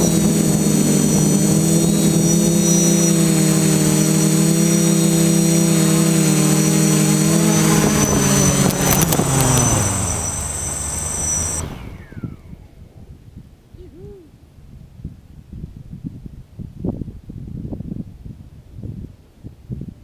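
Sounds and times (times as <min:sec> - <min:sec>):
drone motors humming and whining: 0:00.0 - 0:13.0.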